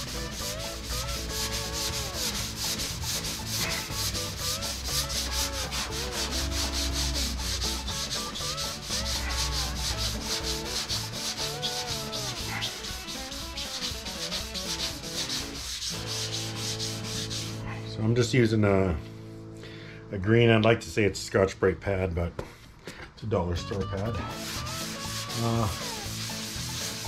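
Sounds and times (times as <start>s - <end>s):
scouring pad scrubbing metal: 0.0s - 17.8s, 23.9s - 27.0s.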